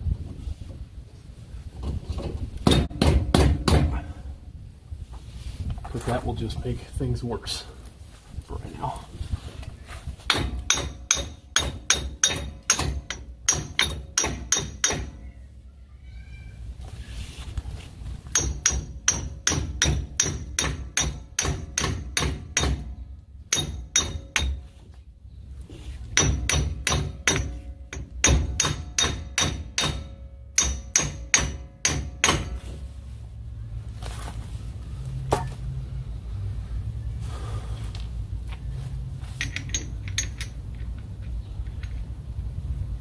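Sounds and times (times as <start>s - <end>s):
hammer striking metal socket: 10.3s - 15.2s, 18.3s - 22.9s, 23.5s - 24.6s, 26.2s - 32.6s, 39.4s - 40.6s.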